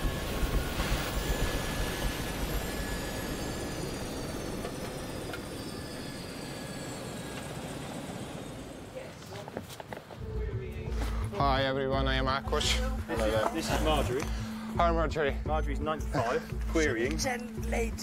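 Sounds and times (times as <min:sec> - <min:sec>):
helicopter winding down: 0:00.0 - 0:09.3.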